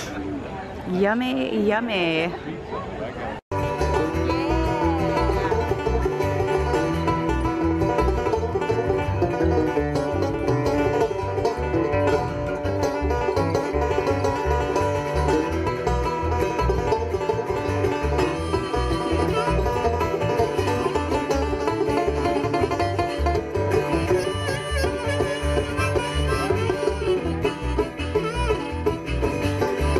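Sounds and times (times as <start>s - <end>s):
acoustic guitar: 3.5s - 29.9s
banjo picking: 3.5s - 29.9s
upright bass plucking: 3.5s - 29.9s.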